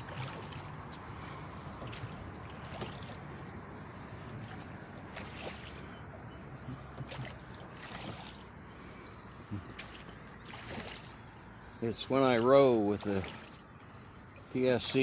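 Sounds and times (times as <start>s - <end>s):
oars splashing water: 0.0s - 15.0s.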